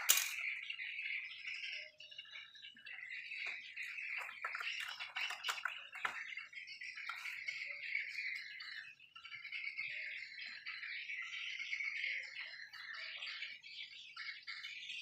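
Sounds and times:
plastic clicks and knocks: 0:03.4 - 0:06.4.

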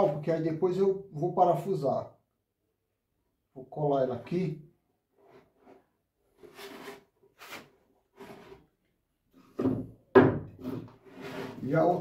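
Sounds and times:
wood scraping on wood: 0:05.1 - 0:08.7, 0:10.6 - 0:12.0.

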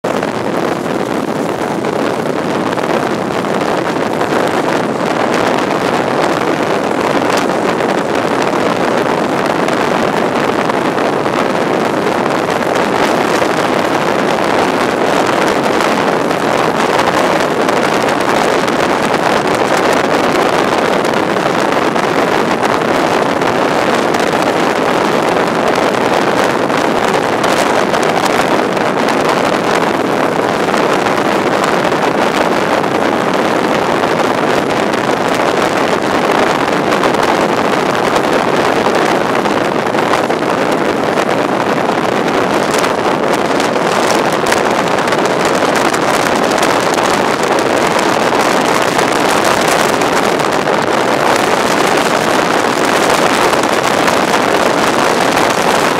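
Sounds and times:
train running noise: 0:00.0 - 0:19.8
wind on microphone: 0:00.0 - 0:55.9.

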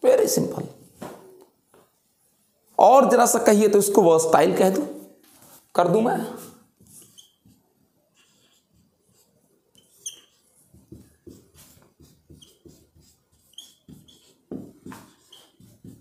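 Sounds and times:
writing on a board: 0:06.7 - 0:16.0.

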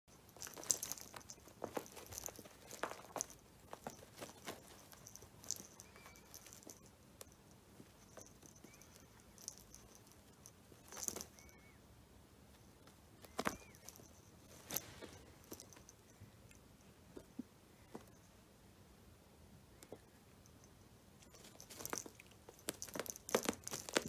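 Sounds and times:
cat scuffling on a rug: 0:13.2 - 0:15.9.

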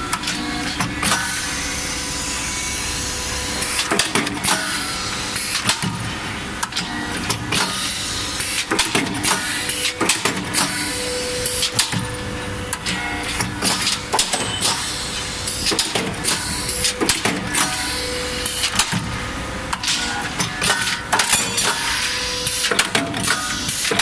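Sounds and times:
machine hum: 0:00.0 - 0:24.0
sharp metal clanks and clicks: 0:06.6 - 0:10.8, 0:11.4 - 0:12.1, 0:12.7 - 0:14.9, 0:19.7 - 0:24.0.

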